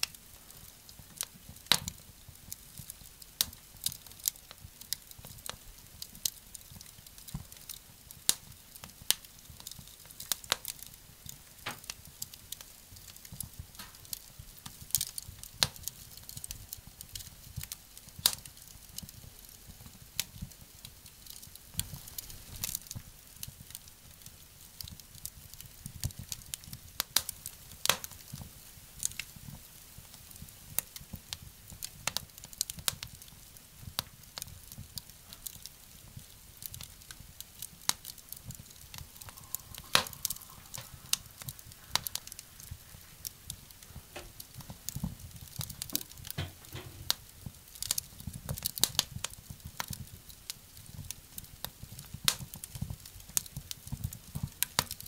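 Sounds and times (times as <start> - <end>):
wood fire crackling in stove: 0.0 - 55.0.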